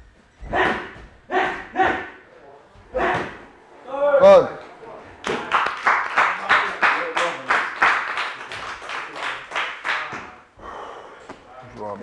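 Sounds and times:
rhythmic hand-clapping: 5.2s - 10.4s.

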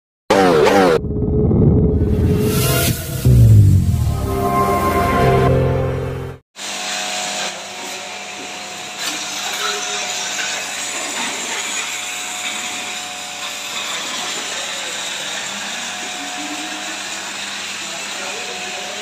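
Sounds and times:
machine hum: 1.0s - 6.4s.

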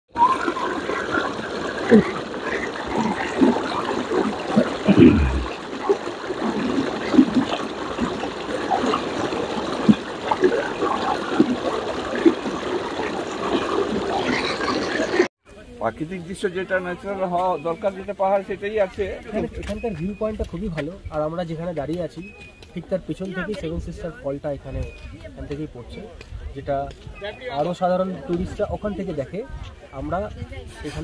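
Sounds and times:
waterfall rushing with splashes: 0.1s - 15.3s.

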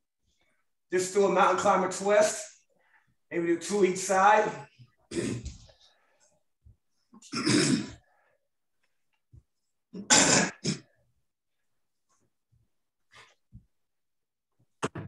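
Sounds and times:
man coughing: 7.2s - 8.0s, 10.0s - 10.9s.

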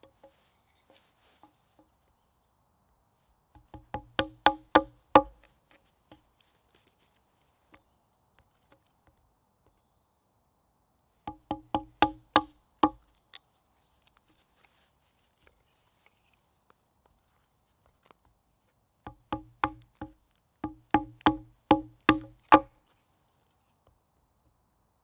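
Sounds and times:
hatchet knocking against a log: 3.6s - 5.5s, 11.3s - 13.1s, 19.1s - 22.7s.

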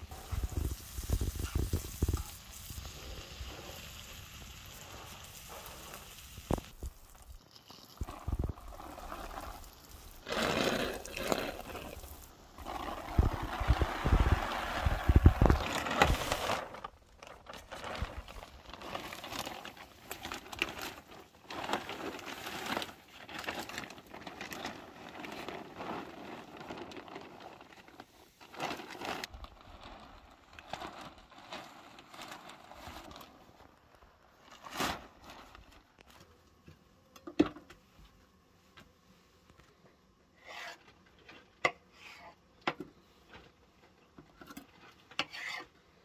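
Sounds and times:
plastic sheeting crinkling: 0.0s - 36.2s.

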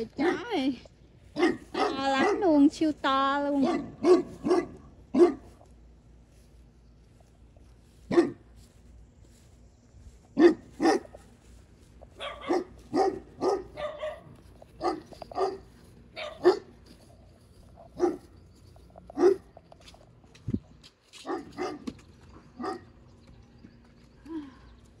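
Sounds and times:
large dog barking: 1.4s - 2.4s, 3.6s - 5.5s, 8.1s - 8.4s, 10.4s - 11.2s, 12.2s - 16.8s, 17.9s - 18.2s, 19.1s - 19.5s, 21.2s - 21.9s, 22.6s - 22.9s.

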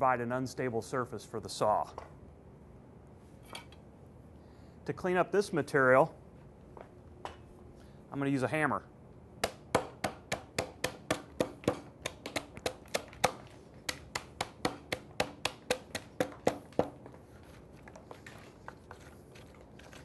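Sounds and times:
hammer knocking out wood slices: 9.4s - 17.2s.

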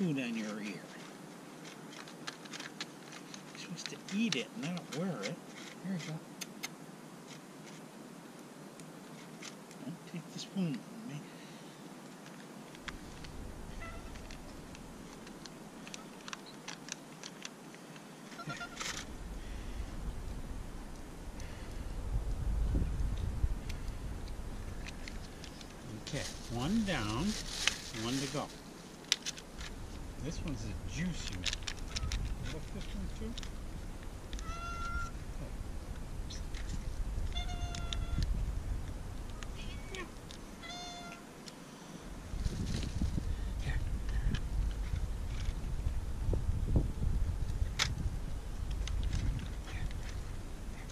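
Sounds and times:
low background rumble: 12.6s - 16.6s, 18.3s - 41.1s, 41.8s - 50.9s
cat meowing: 34.4s - 35.1s, 37.3s - 38.2s, 39.7s - 41.2s.

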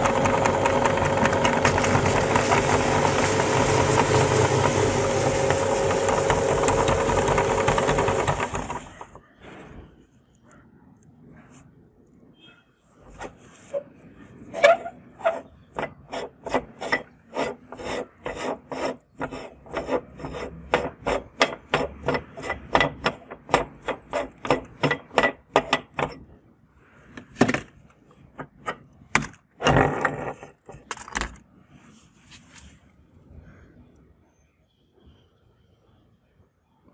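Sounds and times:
metal parts scraping and knocking: 13.1s - 26.3s, 27.2s - 31.6s
metal ring grating on threads: 13.7s - 23.1s.

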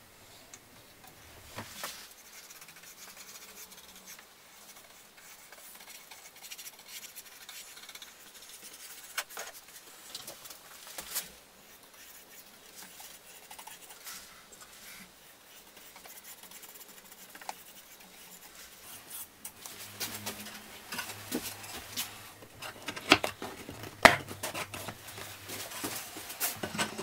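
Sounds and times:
paintbrush scratching on wood: 1.7s - 10.1s, 11.0s - 22.4s.

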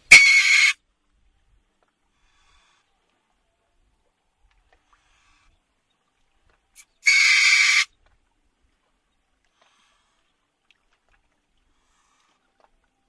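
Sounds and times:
otter screaming: 0.1s - 0.8s.

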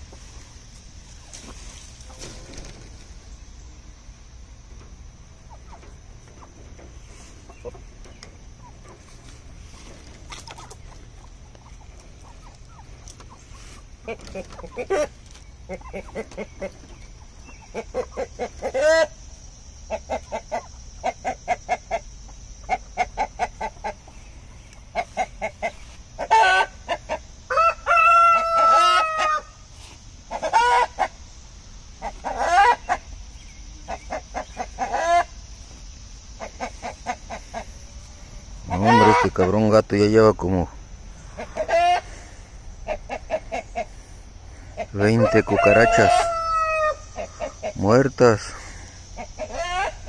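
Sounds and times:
chickens clucking: 0.0s - 50.0s.

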